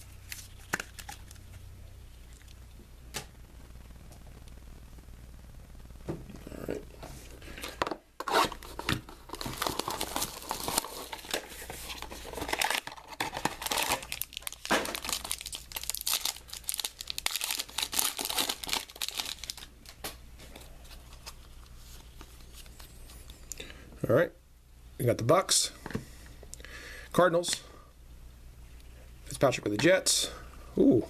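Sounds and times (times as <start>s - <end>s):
wrapper tearing and crinkling: 8.3s - 20.0s.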